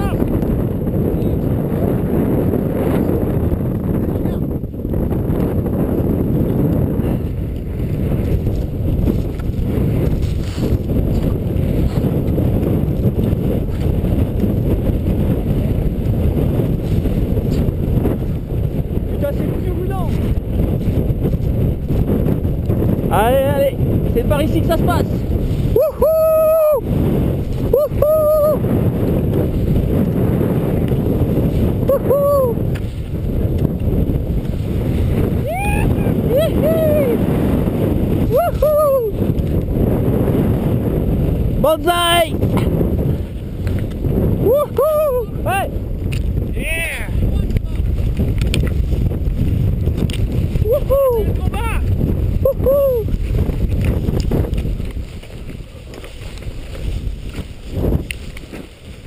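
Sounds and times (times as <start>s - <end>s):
person shouting: 0.0s - 0.2s, 25.8s - 26.8s, 27.7s - 28.6s, 31.9s - 32.6s, 35.4s - 37.2s, 38.3s - 39.2s, 44.4s - 45.7s, 50.6s - 51.8s, 52.5s - 53.1s
wind buffeting microphone: 0.0s - 59.0s
skis swishing through snow: 8.2s - 12.2s, 53.1s - 59.0s.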